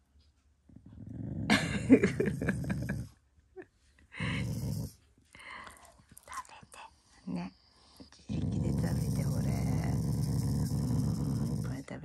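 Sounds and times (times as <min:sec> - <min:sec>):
dog growling: 0:00.7 - 0:03.1, 0:04.2 - 0:05.0, 0:08.2 - 0:11.9.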